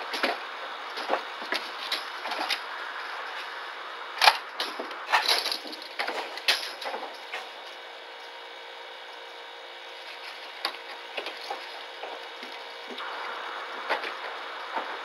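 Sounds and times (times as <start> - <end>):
steady hiss: 0.0 - 15.0
clicks and rattles in wire cage: 4.2 - 7.4.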